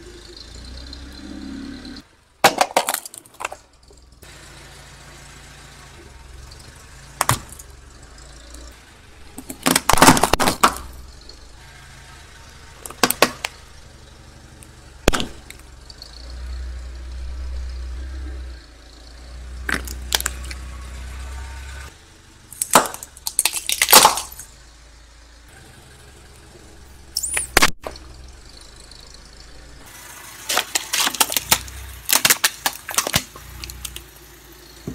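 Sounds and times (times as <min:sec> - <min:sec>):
car rumbling: 0:00.0 - 0:34.9
plastic whistles crushed: 0:02.4 - 0:03.6, 0:09.4 - 0:10.9, 0:12.8 - 0:13.6, 0:22.5 - 0:24.4, 0:30.4 - 0:34.0
pencils cracking under car tyre: 0:02.4 - 0:03.7, 0:07.2 - 0:07.7, 0:09.3 - 0:11.0, 0:12.8 - 0:13.6, 0:14.6 - 0:15.7, 0:19.7 - 0:20.7, 0:22.5 - 0:24.5, 0:30.4 - 0:34.1.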